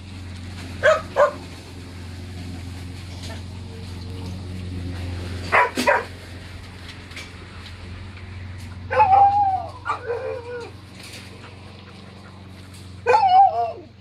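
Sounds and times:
dogs barking: 0:00.8 - 0:01.6, 0:05.4 - 0:06.2, 0:08.8 - 0:14.0.

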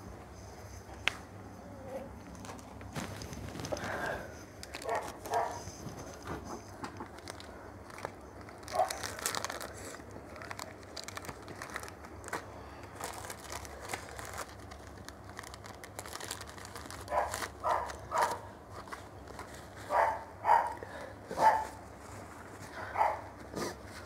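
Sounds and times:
crinkling: 0:02.0 - 0:20.8
crunchy chewing: 0:02.2 - 0:20.8
dog barking: 0:04.8 - 0:05.6, 0:17.1 - 0:18.5, 0:19.9 - 0:21.8, 0:22.9 - 0:23.3.

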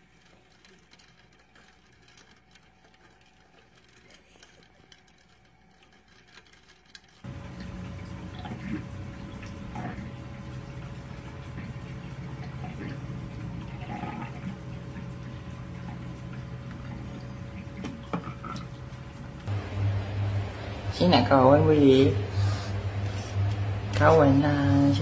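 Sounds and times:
water sloshing and dripping: 0:02.1 - 0:19.5
steady low hum: 0:07.2 - 0:25.0.

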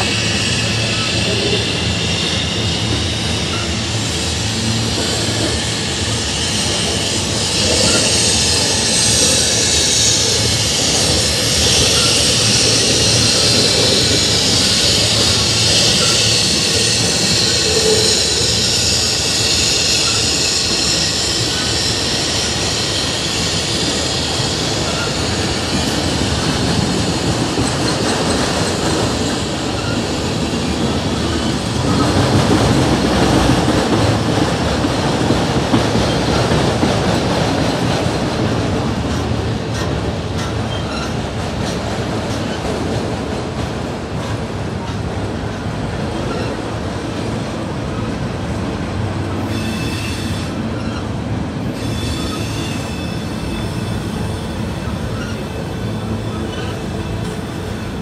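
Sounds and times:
high wheel squeal: 0:00.0 - 0:33.0, 0:39.8 - 0:41.8, 0:46.1 - 0:46.8, 0:49.4 - 0:58.0
train wheels rumbling on rails: 0:00.0 - 0:58.0.

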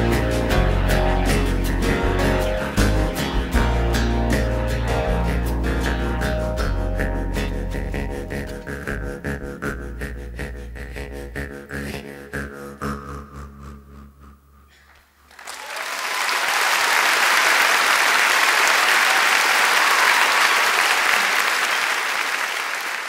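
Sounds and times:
live song ending: 0:00.0 - 0:09.2
audience applause: 0:15.3 - 0:23.0.

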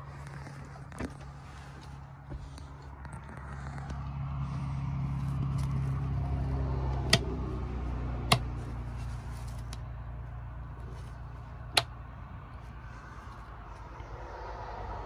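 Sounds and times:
rocker switch clicks: 0:07.0 - 0:07.3, 0:08.3 - 0:08.5.

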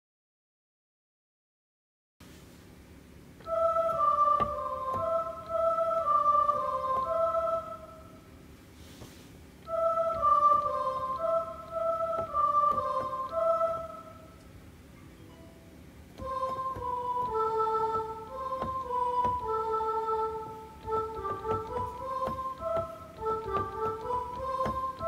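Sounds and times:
electronic keyboard flute-like melody: 0:03.4 - 0:08.0, 0:09.7 - 0:14.3, 0:16.2 - 0:25.0.

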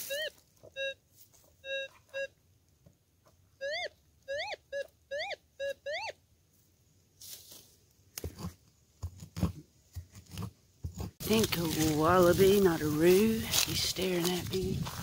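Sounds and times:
metal detector tones: 0:00.0 - 0:01.0, 0:01.6 - 0:02.4
pick scraping the ground: 0:07.2 - 0:15.0.

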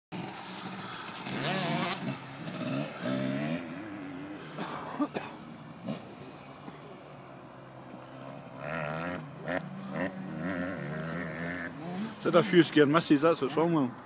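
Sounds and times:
dirt bike engine revving: 0:00.2 - 0:06.4, 0:08.2 - 0:12.6.

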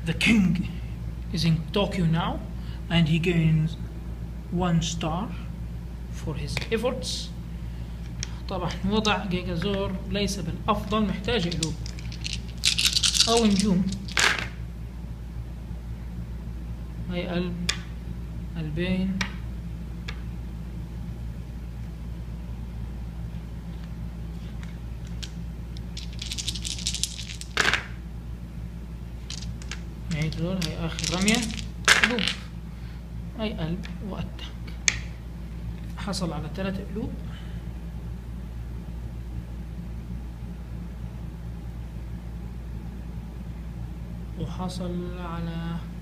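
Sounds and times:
low electrical hum: 0:00.0 - 0:46.0
dice rattling in hand: 0:10.8 - 0:14.5, 0:25.0 - 0:27.9, 0:29.2 - 0:32.4
dice clattering down: 0:11.2 - 0:14.5, 0:25.0 - 0:25.4, 0:26.0 - 0:27.9, 0:29.2 - 0:32.5
dice clicking: 0:11.3 - 0:14.5, 0:25.0 - 0:27.9, 0:29.3 - 0:32.4.

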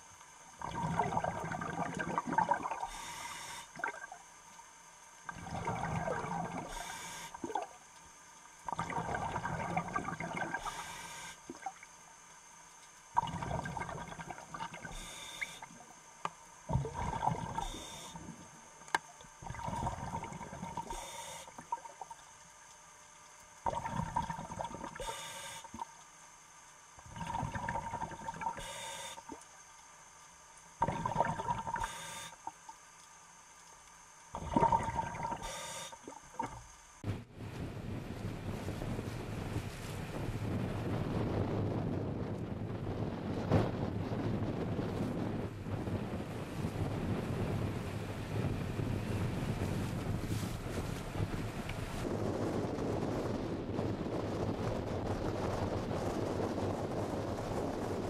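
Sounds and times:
exhaust bubbles gushing: 0:00.6 - 0:03.1, 0:03.7 - 0:04.2, 0:05.2 - 0:07.8, 0:08.6 - 0:11.8, 0:13.1 - 0:15.9, 0:16.7 - 0:17.9, 0:18.9 - 0:22.2, 0:23.6 - 0:25.9, 0:27.0 - 0:29.4, 0:30.8 - 0:32.5, 0:34.3 - 0:58.0
regulator inhale hiss: 0:02.8 - 0:03.8, 0:06.6 - 0:07.5, 0:10.5 - 0:11.4, 0:14.8 - 0:15.8, 0:17.5 - 0:18.4, 0:20.8 - 0:21.6, 0:24.9 - 0:25.8, 0:28.5 - 0:29.4, 0:31.7 - 0:32.5, 0:35.3 - 0:36.2.

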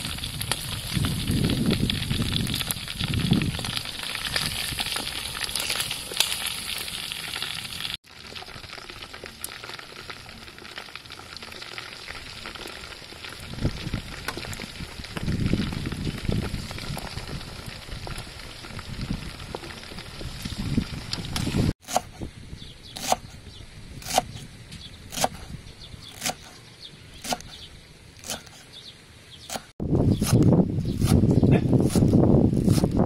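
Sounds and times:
frying in hot oil sizzling: 0:00.0 - 0:21.8.

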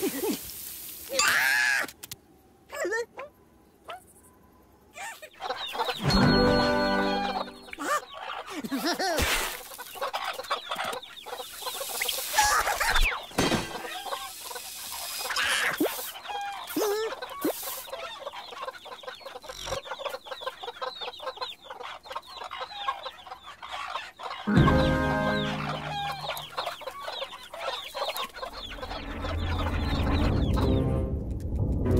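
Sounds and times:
cartoon hens clucking: 0:13.8 - 0:29.4.

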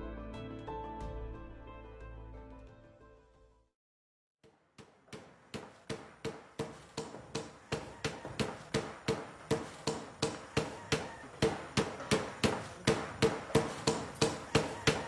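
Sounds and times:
hammer blows on metal: 0:05.2 - 0:15.0.

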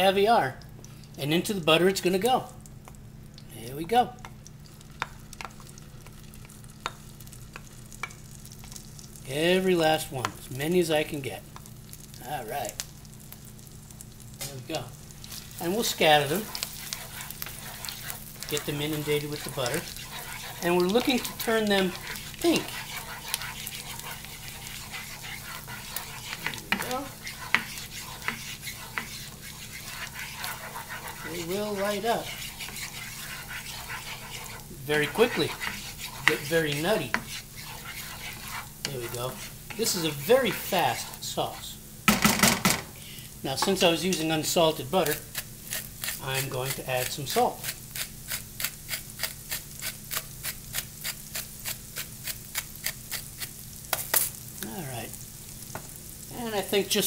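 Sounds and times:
butter sizzling in frying pan: 0:00.0 - 0:57.0
wooden spatula scraping pan: 0:15.3 - 0:41.7
spatula tapping pan: 0:15.7 - 0:41.2, 0:43.5 - 0:44.3.

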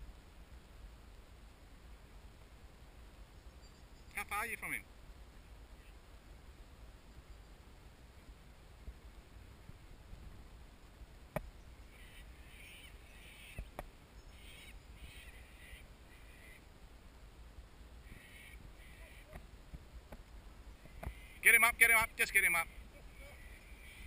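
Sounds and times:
bird calling: 0:11.6 - 0:16.7, 0:18.0 - 0:19.5, 0:20.8 - 0:24.0
faint sharp clicks: 0:13.5 - 0:13.9.

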